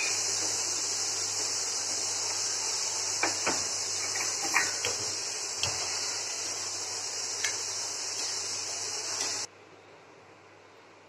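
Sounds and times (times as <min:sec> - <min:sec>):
steady hiss: 0:00.0 - 0:09.5.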